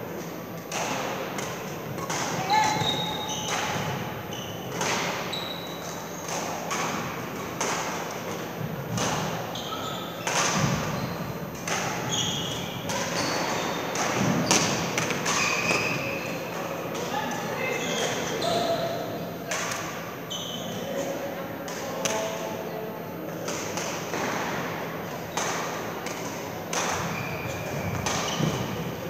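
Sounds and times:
shoes squeaking on court floor: 0:01.9 - 0:07.6, 0:08.4 - 0:19.0, 0:20.3 - 0:21.1, 0:25.2 - 0:29.0
racket striking shuttlecock: 0:06.2 - 0:08.0, 0:08.9 - 0:09.4, 0:10.2 - 0:12.1, 0:13.9 - 0:15.8, 0:25.3 - 0:27.2, 0:27.9 - 0:28.8.

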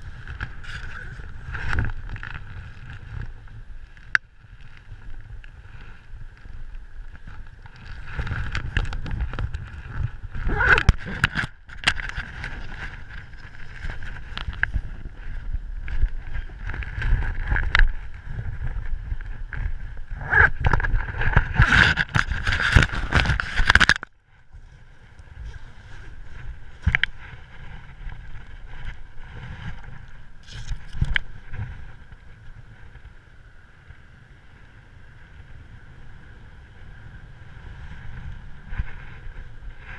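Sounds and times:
wind rushing over microphone: 0:00.0 - 0:39.9
fabric flapping: 0:07.2 - 0:23.9.

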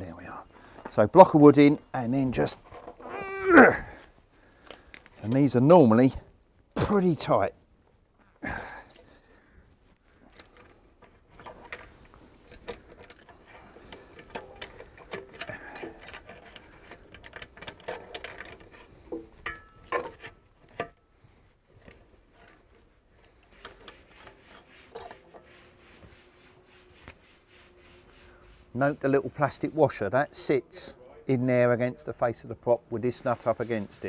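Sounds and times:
wrench clicking and scraping: 0:11.4 - 0:21.0.

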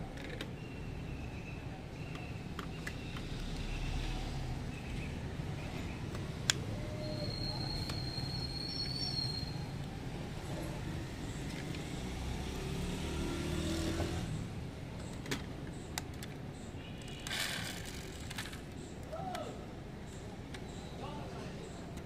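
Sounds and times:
motor vehicle passing: 0:10.2 - 0:14.8
metal toy cars clicking: 0:15.0 - 0:19.0.

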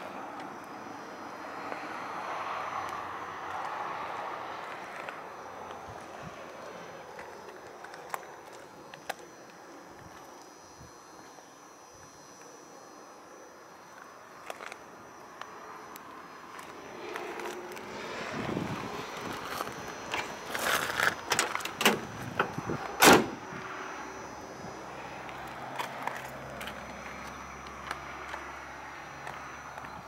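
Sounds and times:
car door latch clicks: 0:21.3 - 0:23.4
car door slamming: 0:21.3 - 0:23.4.

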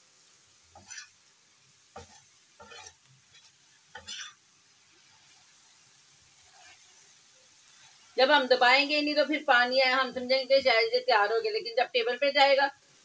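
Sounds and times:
faint sizzle: 0:00.0 - 0:13.0
metal spatula scraping pan: 0:00.7 - 0:01.2, 0:01.9 - 0:04.4, 0:06.3 - 0:07.1.

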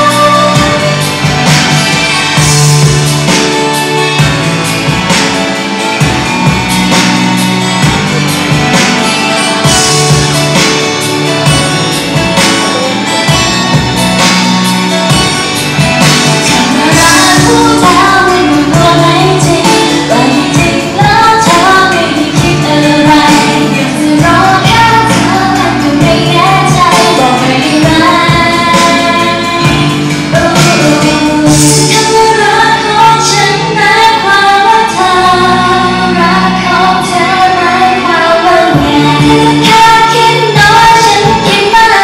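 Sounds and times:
woman singing into microphone: 0:00.0 - 0:02.9, 0:16.4 - 0:42.0
pop backing track with steady beat: 0:00.0 - 0:42.0.

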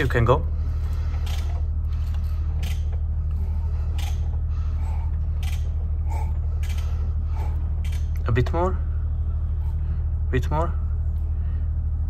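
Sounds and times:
steady low hum: 0:00.0 - 0:12.0
ratchet clicking: 0:01.2 - 0:03.0, 0:03.9 - 0:04.4, 0:05.4 - 0:08.4.

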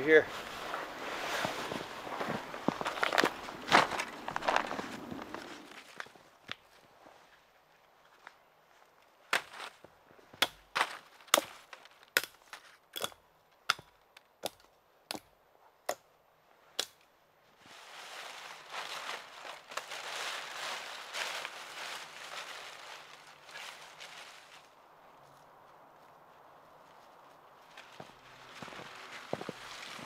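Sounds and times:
rough rustling: 0:00.0 - 0:08.3, 0:17.6 - 0:30.0.

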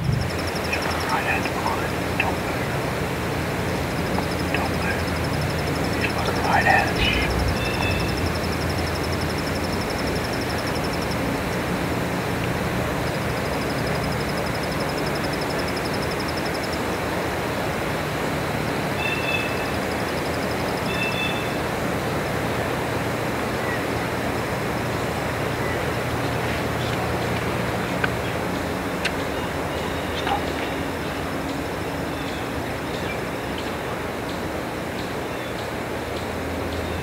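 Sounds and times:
high pulsing trill: 0:00.0 - 0:17.0
outdoor ambience hiss: 0:00.0 - 0:37.0.

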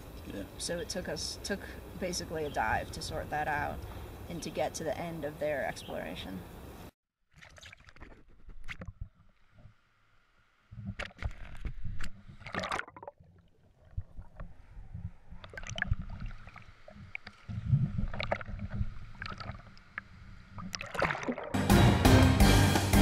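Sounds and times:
water sloshing and bubbling: 0:07.2 - 0:09.9, 0:10.7 - 0:21.6
knocks and splashes: 0:10.9 - 0:14.5, 0:20.6 - 0:21.8.

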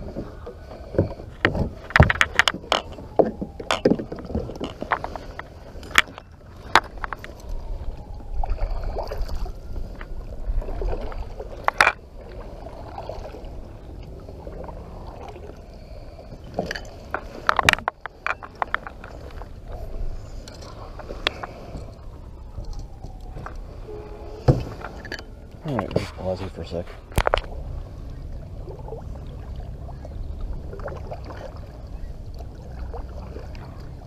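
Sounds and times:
steady low rumble: 0:00.0 - 0:34.0
gear knocking against kayak hull: 0:00.2 - 0:07.2.

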